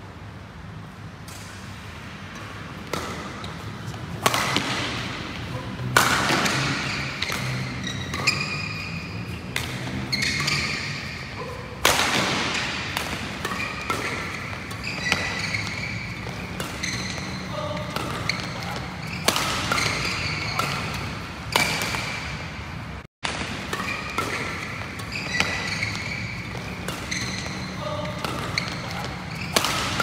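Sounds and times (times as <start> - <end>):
rackets striking shuttlecock: 1.2 - 22.5, 23.2 - 30.0
short high squeaks: 6.6 - 9.4, 10.0 - 11.5, 13.5 - 21.0, 23.8 - 30.0.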